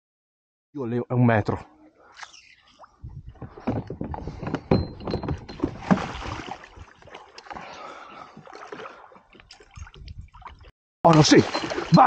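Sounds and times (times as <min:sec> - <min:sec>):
fish thrashing in water: 0:02.7 - 0:12.0
net clattering against plastic kayak: 0:03.3 - 0:07.7, 0:11.1 - 0:12.0
water splashing: 0:04.8 - 0:12.0.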